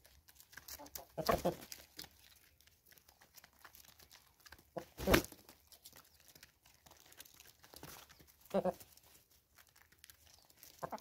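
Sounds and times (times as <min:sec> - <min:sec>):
chickens pecking grain on concrete: 0:00.0 - 0:11.0
crunchy scratching: 0:00.0 - 0:11.0.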